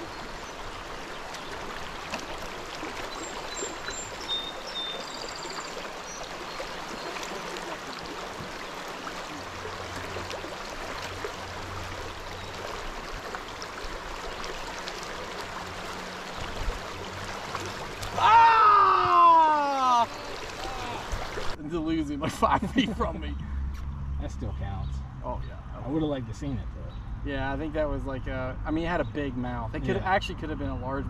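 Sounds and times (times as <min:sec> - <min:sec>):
river water rushing: 0:00.0 - 0:21.6.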